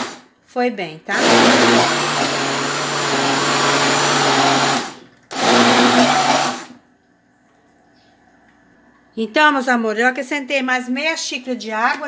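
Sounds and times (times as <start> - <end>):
countertop blender running: 0.0 - 0.2, 1.1 - 6.8.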